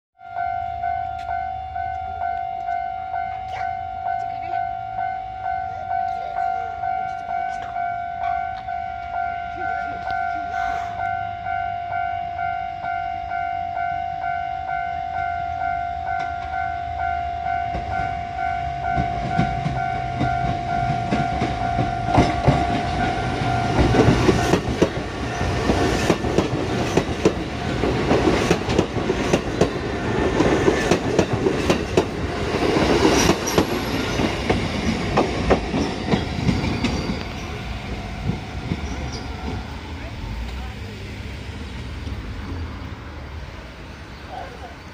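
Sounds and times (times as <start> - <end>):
level crossing bell ringing: 0.2 - 24.6
train wheels clacking over rails: 18.8 - 42.7.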